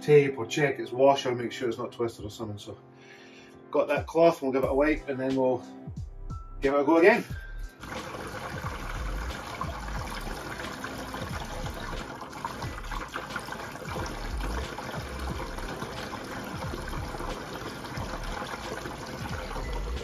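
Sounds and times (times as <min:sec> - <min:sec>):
water filling a plastic tank: 0:07.8 - 0:20.0.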